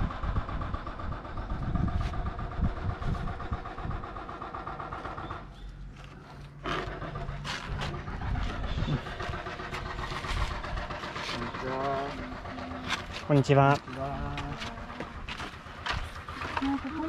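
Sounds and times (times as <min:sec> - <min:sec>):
motor engine running: 0:00.0 - 0:17.0.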